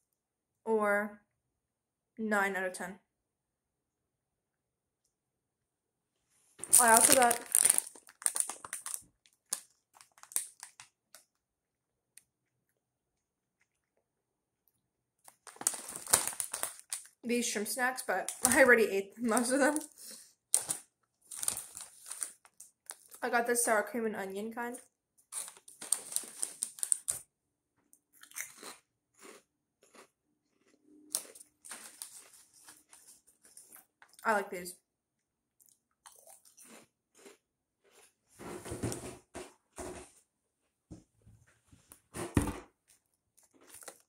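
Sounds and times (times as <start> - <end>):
plastic snack bag crinkling: 6.6 - 11.4, 15.2 - 23.2, 25.2 - 27.3, 30.6 - 34.2, 43.0 - 44.0
chips crunched while chewing: 6.7 - 11.4, 15.2 - 17.2, 20.5 - 23.2, 25.3 - 27.2, 28.2 - 34.2, 35.6 - 38.1, 43.4 - 44.0.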